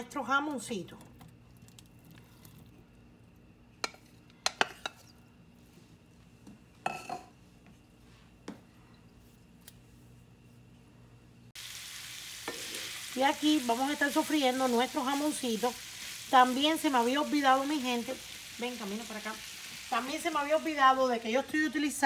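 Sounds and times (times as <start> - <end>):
meat sizzling in a frying pan: 11.6 - 22.0.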